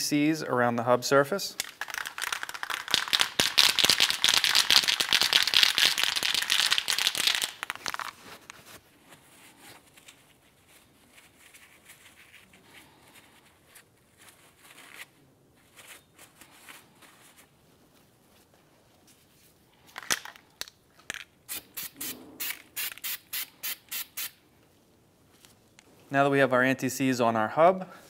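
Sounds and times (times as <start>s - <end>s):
paper towel crinkling: 6.0s - 19.6s.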